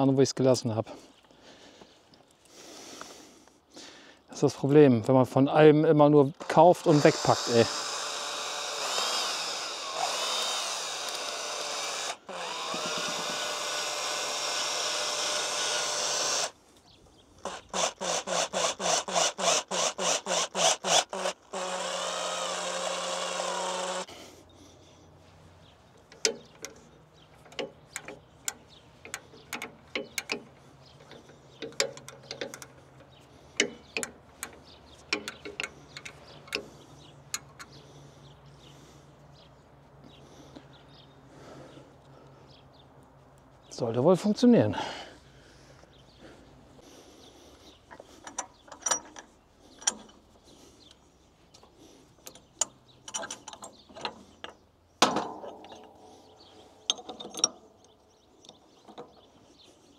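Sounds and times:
power drill-driver running: 0:06.5 - 0:16.6, 0:17.4 - 0:24.1
handling clicks and knocks: 0:25.9 - 0:37.8, 0:47.9 - 0:59.4.

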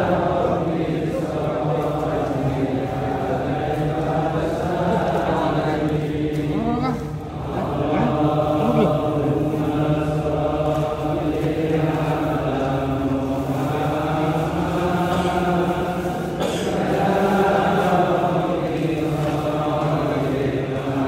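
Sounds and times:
men chanting in unison: 0:00.0 - 0:21.0.

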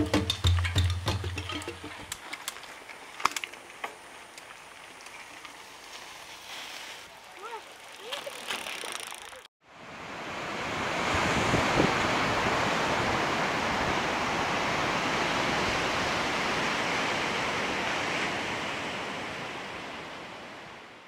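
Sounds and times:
ocean surf on sandy beach: 0:09.6 - 0:21.0
wind rumble on microphone: 0:09.8 - 0:21.0.

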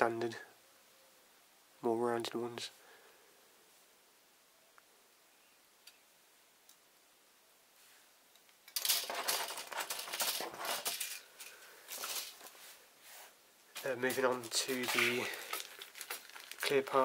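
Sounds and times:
plastic packaging crinkling and rattling: 0:08.7 - 0:12.6, 0:13.8 - 0:17.0.

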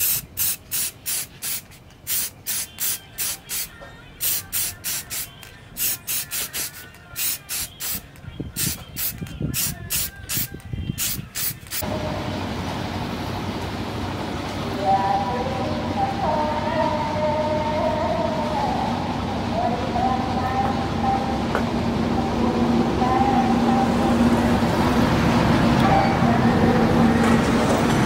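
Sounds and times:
aerosol spray can puffs: 0:00.0 - 0:11.8.

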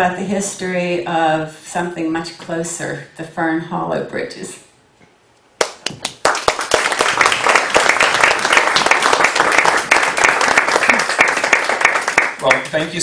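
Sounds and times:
audience applauding: 0:05.6 - 0:13.0.

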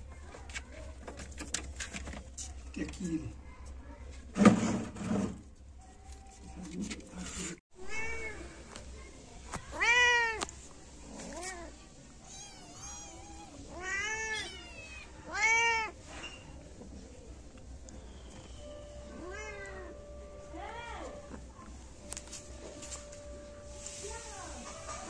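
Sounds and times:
kittens meowing: 0:19.1 - 0:20.1.

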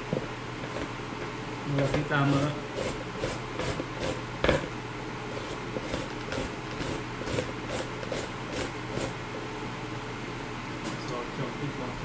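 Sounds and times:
papaya rasping on a grater: 0:01.7 - 0:04.7, 0:05.3 - 0:09.2, 0:10.8 - 0:11.1.

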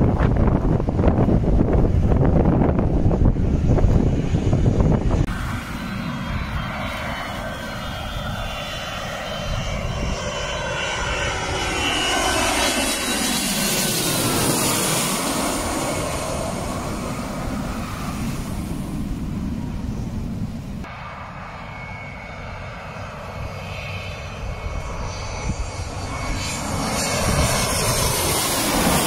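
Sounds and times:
airliner engines whine and rush: 0:00.0 - 0:29.0.

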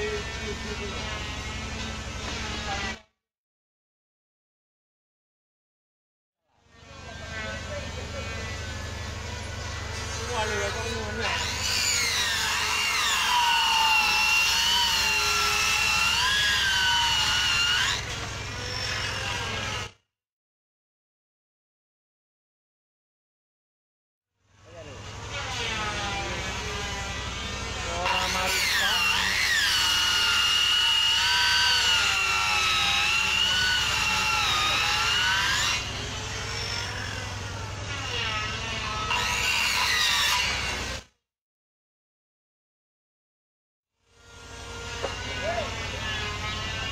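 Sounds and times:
circular saw cutting wood: 0:00.0 - 0:03.0, 0:06.6 - 0:20.0, 0:24.5 - 0:41.2, 0:44.0 - 0:46.9.

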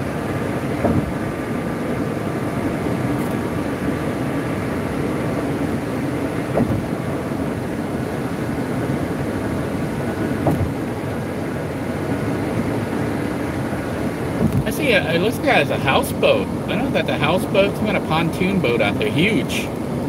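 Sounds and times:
vehicle road noise: 0:00.0 - 0:20.0
brief thump: 0:00.8 - 0:01.2, 0:06.5 - 0:06.9, 0:10.4 - 0:10.8.

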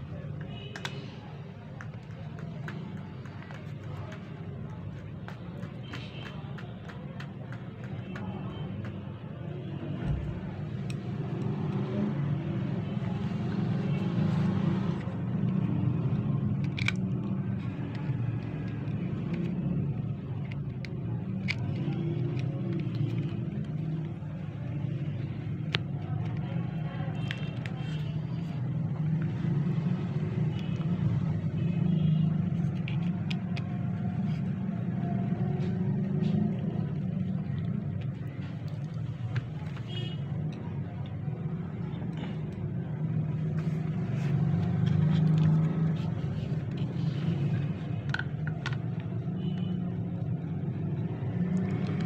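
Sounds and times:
plastic parts clicking: 0:14.9 - 0:52.0.

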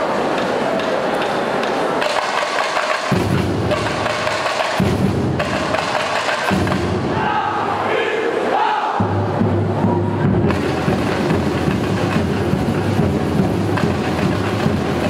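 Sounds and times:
snare drums: 0:00.3 - 0:07.4, 0:09.0 - 0:15.0
bass drums: 0:09.0 - 0:15.0.

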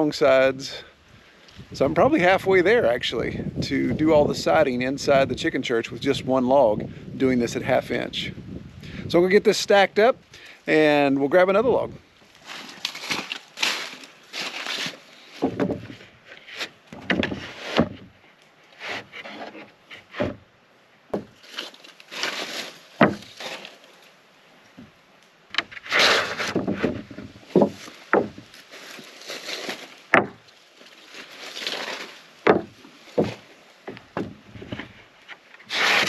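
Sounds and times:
wooden boards sliding and scraping: 0:11.6 - 0:20.5, 0:21.1 - 0:24.0, 0:24.8 - 0:36.0
sharp wooden knocks: 0:15.4 - 0:16.1, 0:16.9 - 0:18.1, 0:18.9 - 0:20.4, 0:21.1 - 0:21.4, 0:23.0 - 0:23.3, 0:25.5 - 0:28.5, 0:30.1 - 0:30.5, 0:32.4 - 0:35.0.

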